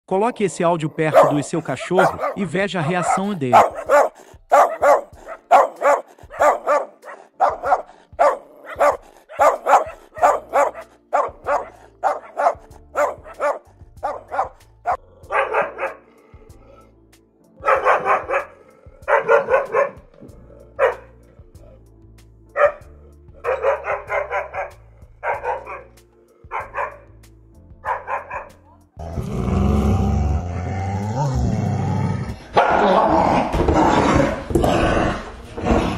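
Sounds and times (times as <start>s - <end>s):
low bass line music: 0.1s - 35.9s
dog barking: 1.0s - 16.1s, 17.6s - 20.1s, 20.8s - 21.2s, 22.5s - 27.1s, 27.8s - 28.6s.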